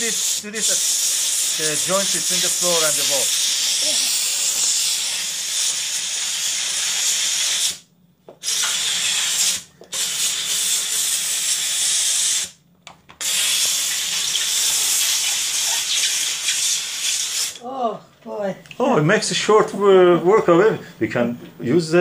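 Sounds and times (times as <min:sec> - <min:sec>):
steam cleaner hissing: 0:00.0 - 0:07.8, 0:08.4 - 0:12.6, 0:13.2 - 0:17.6.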